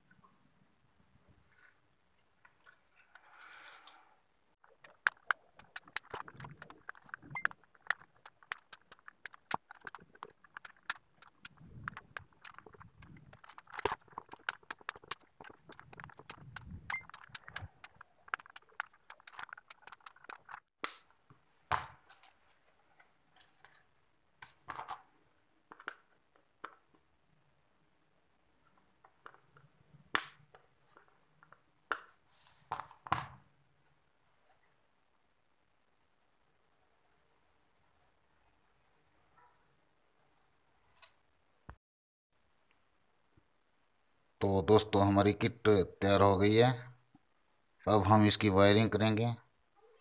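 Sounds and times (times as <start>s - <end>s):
circuit board rubbing: 4.8s - 20.6s.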